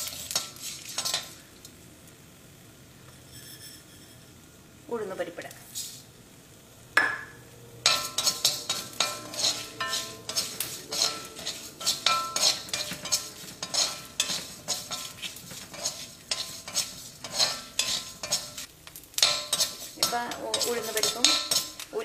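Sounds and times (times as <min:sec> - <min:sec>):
spoon stirring spices in wok: 0:00.0 - 0:01.8, 0:07.8 - 0:22.0.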